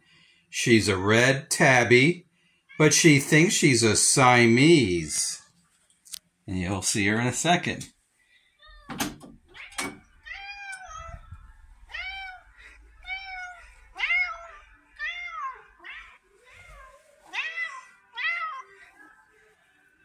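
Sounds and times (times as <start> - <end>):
door latch clicking: 8.9 - 10.0
cat meowing: 9.5 - 18.8.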